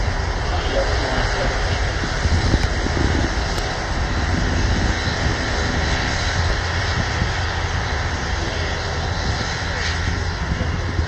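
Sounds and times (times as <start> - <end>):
jet engine rumbling: 0.0 - 11.0.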